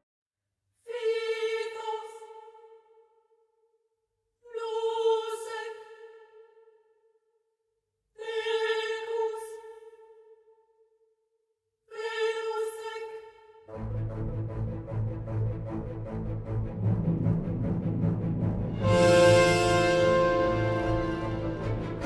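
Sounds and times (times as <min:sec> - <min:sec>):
sustained music note: 0:18.6 - 0:22.0.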